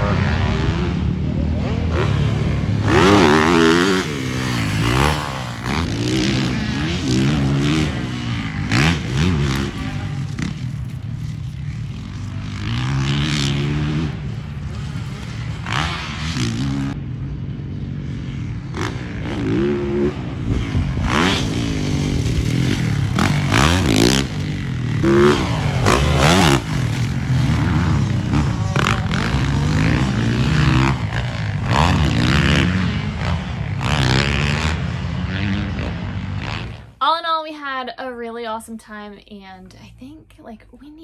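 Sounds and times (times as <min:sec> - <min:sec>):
dirt bike engine revving: 0:00.0 - 0:17.0, 0:17.9 - 0:37.0.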